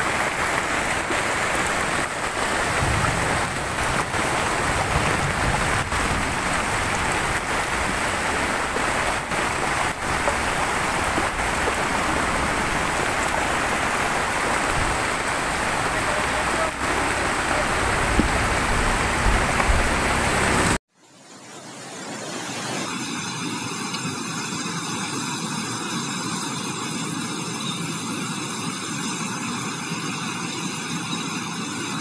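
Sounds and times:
floodwater pouring: 0:00.0 - 0:20.8
heavy rain: 0:00.0 - 0:20.8.

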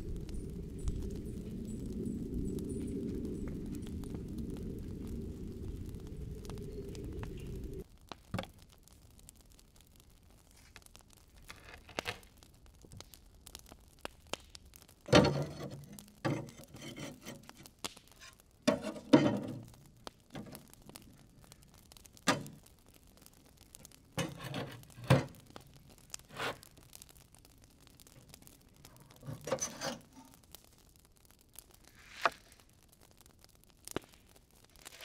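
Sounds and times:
metal scraping: 0:29.1 - 0:30.4.

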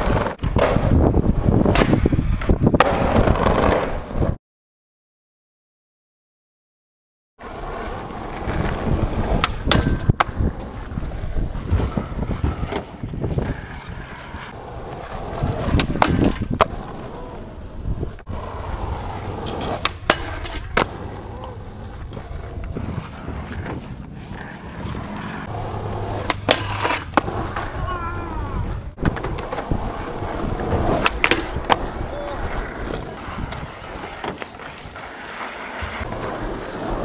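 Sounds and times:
skateboard wheels rolling: 0:00.0 - 0:04.4, 0:07.4 - 0:37.0
skateboard clacking on ground: 0:07.4 - 0:37.0.

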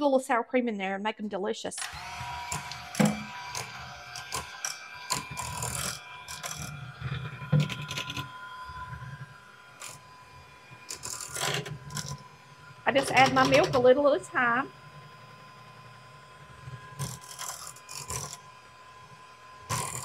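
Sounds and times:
electric mixer motor whine: 0:01.8 - 0:20.0.

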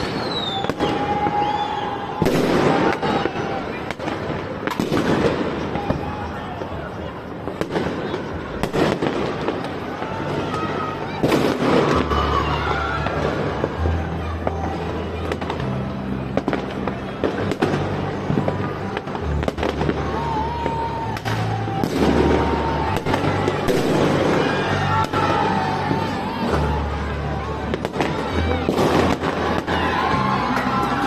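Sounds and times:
fireworks bangs and cracks: 0:00.0 - 0:31.0
bass-heavy music: 0:12.0 - 0:31.0.

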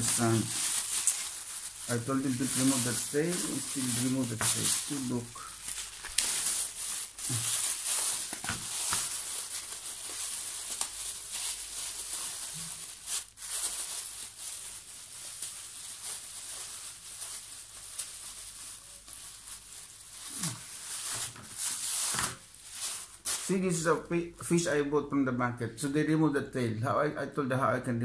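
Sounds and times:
plastic bag rustling: 0:00.0 - 0:23.8.

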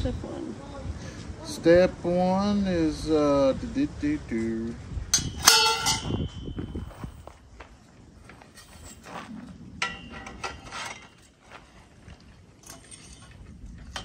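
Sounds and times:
metal tubes clicking and scraping: 0:05.2 - 0:06.6, 0:09.8 - 0:11.6, 0:12.6 - 0:14.0
metal tube knocks: 0:05.2 - 0:06.8.

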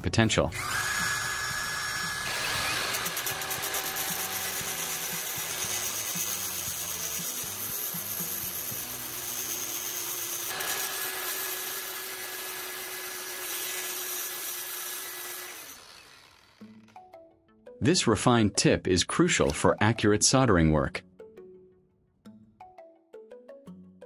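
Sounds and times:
angle grinder grinding metal: 0:00.6 - 0:16.9.

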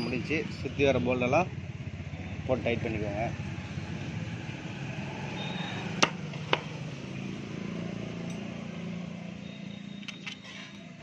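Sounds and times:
metallic clinks: 0:08.2 - 0:08.6.

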